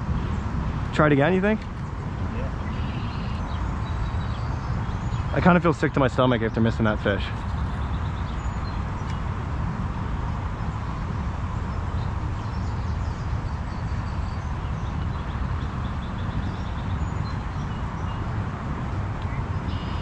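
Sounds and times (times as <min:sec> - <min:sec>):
steady low rumble: 0:00.0 - 0:20.0
faint bird chirps: 0:02.4 - 0:05.4, 0:19.3 - 0:20.0.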